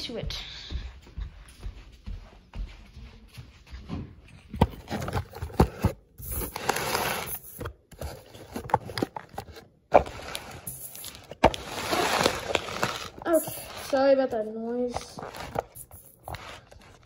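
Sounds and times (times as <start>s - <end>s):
paper scraping across table: 6.2s - 7.6s.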